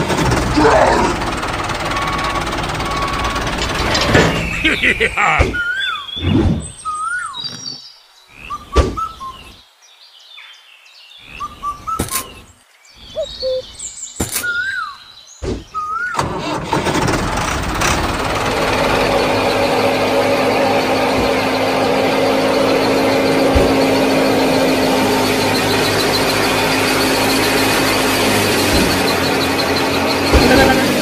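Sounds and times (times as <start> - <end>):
short chirping calls: 4.3 - 9.6, 11.2 - 16.2.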